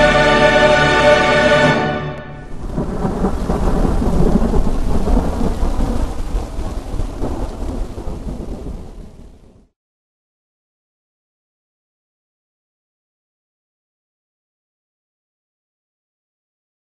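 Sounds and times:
steady rain: 0.0s - 9.7s
thunder: 2.4s - 9.7s.

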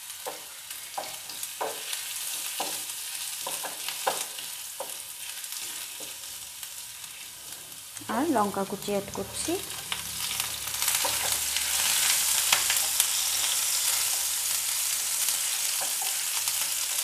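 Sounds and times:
garlic sizzling in hot oil: 0.0s - 17.0s
spatula scraping pan: 9.1s - 14.6s.

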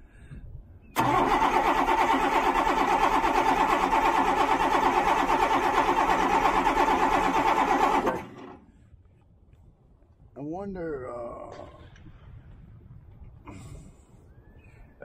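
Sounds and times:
starter cranking diesel engine: 1.0s - 8.6s.

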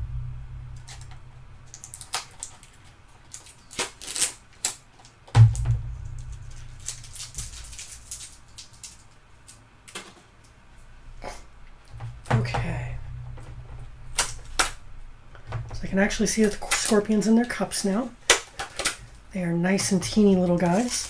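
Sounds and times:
low hum: 0.0s - 2.7s, 5.4s - 8.7s, 10.8s - 18.1s.

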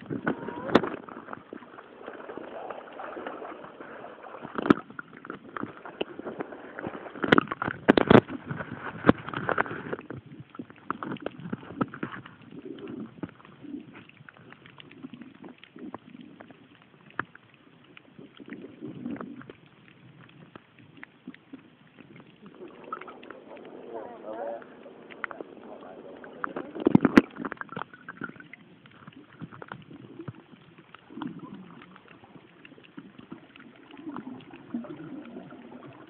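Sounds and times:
underwater knocks and splashes: 0.0s - 36.0s
underwater water noise: 0.0s - 36.0s
soft low hums: 17.8s - 36.0s.

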